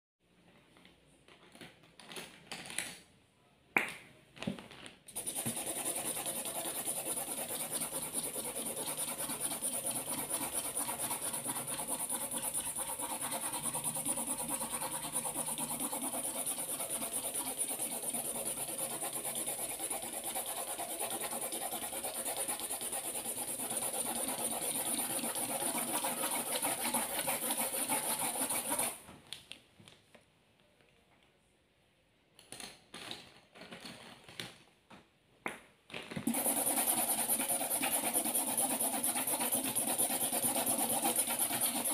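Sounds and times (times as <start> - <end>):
marker scribbling on paper: 5.2 - 29.0, 36.3 - 41.9.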